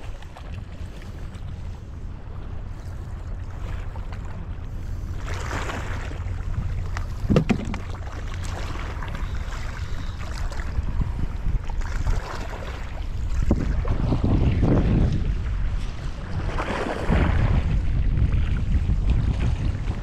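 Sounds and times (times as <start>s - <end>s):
wind rumbling on microphone: 0.0s - 20.0s
short knock: 7.3s - 7.8s.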